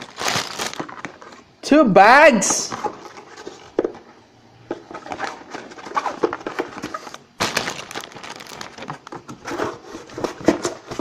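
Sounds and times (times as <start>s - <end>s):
plastic bags crinkling: 0.0s - 1.4s, 5.0s - 10.6s.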